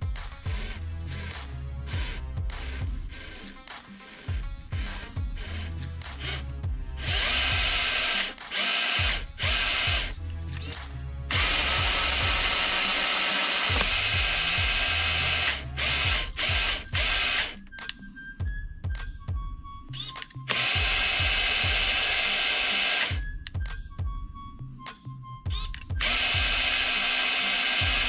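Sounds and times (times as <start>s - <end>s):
electric motor whirring: 0.4s - 17.7s, 20.0s - 23.3s, 25.5s - 28.0s.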